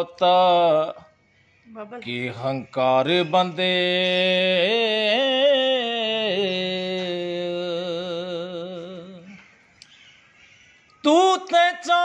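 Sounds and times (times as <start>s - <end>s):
man singing unaccompanied: 0.0s - 1.2s, 2.0s - 9.4s, 11.0s - 12.0s.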